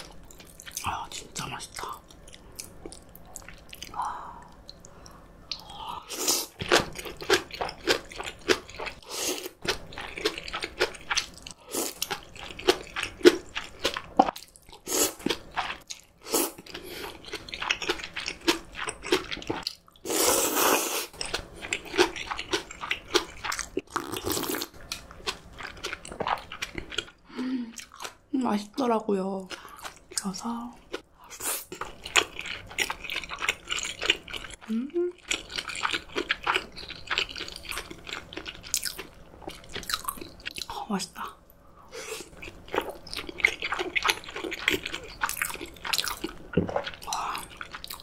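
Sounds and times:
chewing and crunching cabbage: 6.1 - 28.7, 29.3 - 40.8, 41.9 - 48.0
slurping noodles: 20.1 - 21.2.

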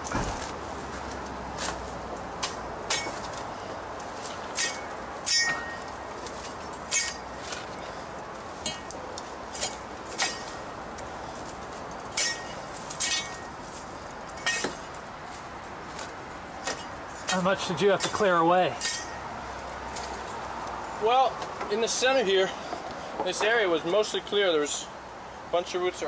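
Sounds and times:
sharp ringing clinks and knocks: 2.2 - 21.8.

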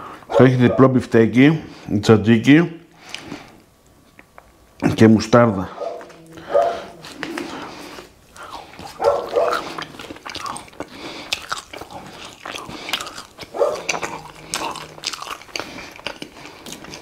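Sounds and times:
chewing and lip smacking: 5.7 - 17.0
pitched throat sounds: 5.7 - 17.0.

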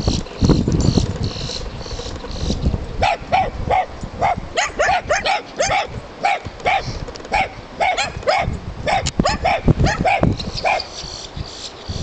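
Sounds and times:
dogs barking: 3.0 - 10.9.

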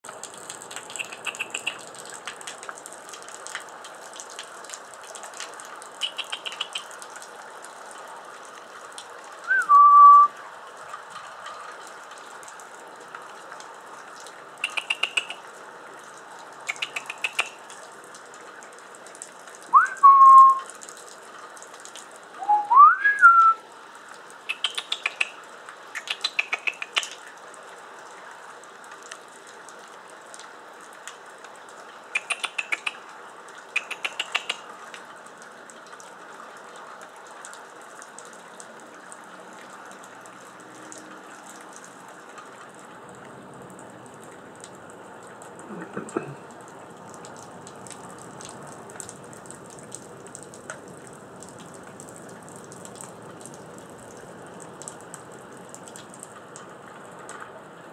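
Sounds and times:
steady rain: 0.0 - 57.9
hummingbird chips: 0.8 - 1.9
whistled bird notes: 9.5 - 10.3, 19.8 - 20.6, 22.4 - 23.6.

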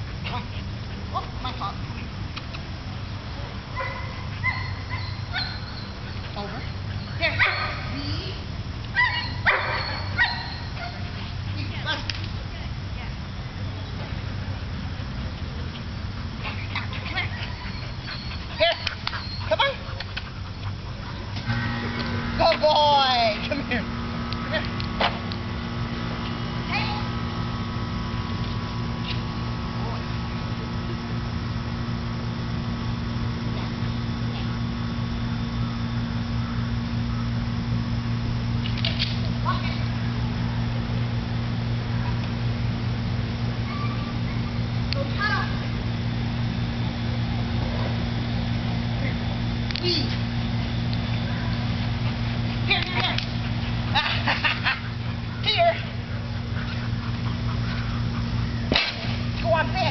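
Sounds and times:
constant hiss: 0.0 - 59.9
steady low hum: 0.0 - 59.9
dog barking: 3.8 - 5.7, 7.4 - 7.9, 9.0 - 11.1.

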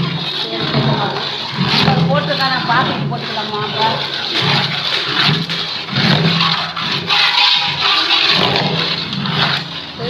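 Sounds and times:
metal ladle scraping in pot: 0.0 - 10.0.

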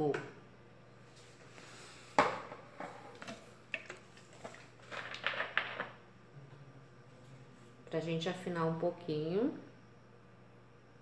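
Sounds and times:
containers knocking and clattering: 3.1 - 6.0
containers rattling: 3.8 - 6.0.

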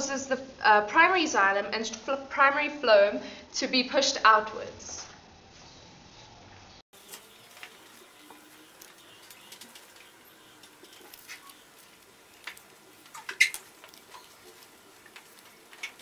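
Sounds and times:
faint steady hiss: 7.0 - 16.0.

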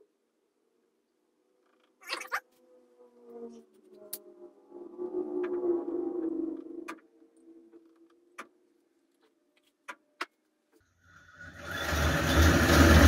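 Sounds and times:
spinning machine whirring: 11.1 - 13.0.

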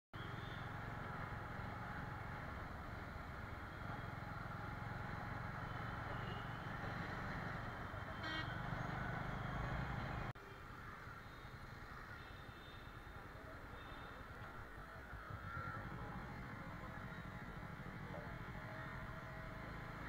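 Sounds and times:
motorcycle engine running: 0.2 - 10.3, 15.0 - 20.0
road traffic noise: 0.2 - 20.0
horn sounding: 8.0 - 9.1.

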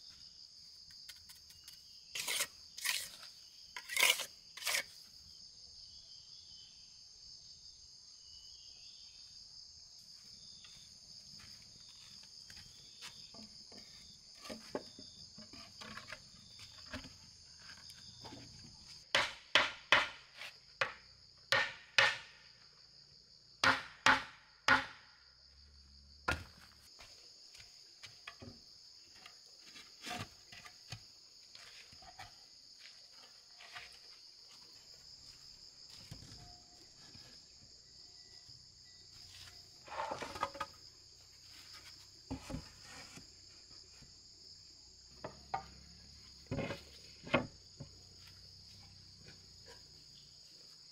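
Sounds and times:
insects droning: 0.0 - 50.9
hammer striking wooden boards: 19.1 - 20.2, 20.8 - 22.4, 23.6 - 25.0.

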